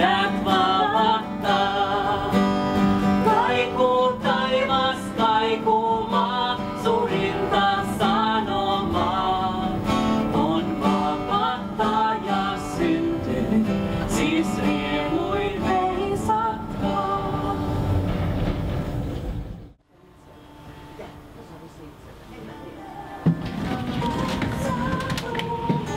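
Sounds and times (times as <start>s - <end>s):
woman singing: 0.0s - 2.6s, 3.2s - 18.0s, 22.5s - 25.9s
acoustic guitar: 0.0s - 25.9s.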